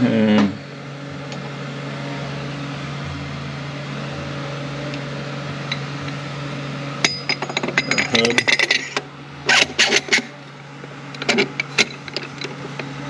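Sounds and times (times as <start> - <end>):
low mechanical hum: 0.0 - 13.0
metal parts clinking: 7.0 - 10.3, 11.2 - 12.6.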